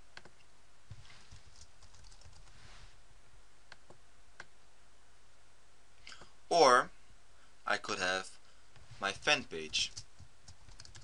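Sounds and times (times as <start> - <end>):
computer keyboard typing: 1.3 - 2.5, 9.1 - 11.0.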